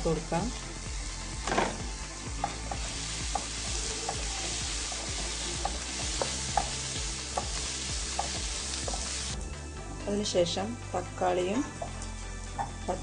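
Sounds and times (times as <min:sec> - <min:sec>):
onions sizzling in oil: 0:00.0 - 0:09.4, 0:11.1 - 0:13.0
spatula knocking against pan: 0:07.4 - 0:09.0.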